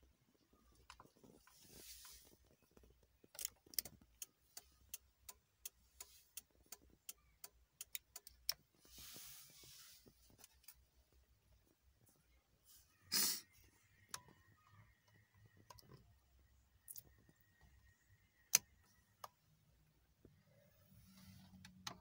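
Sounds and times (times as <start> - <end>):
soft rustle: 0.6 - 3.2, 8.7 - 11.2, 12.0 - 13.1.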